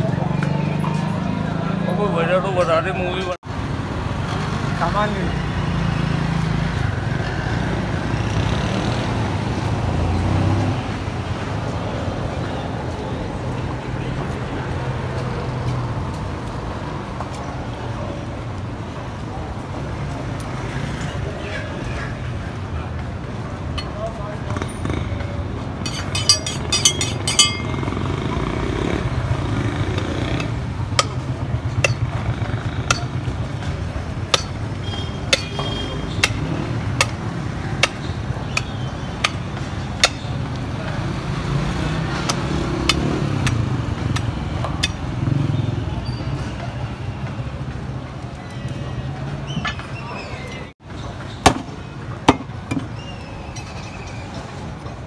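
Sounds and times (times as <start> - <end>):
street traffic rumble: 0.0 - 55.0
voices: 16.9 - 55.0
knife striking chopping block: 34.3 - 34.6, 35.3 - 35.6.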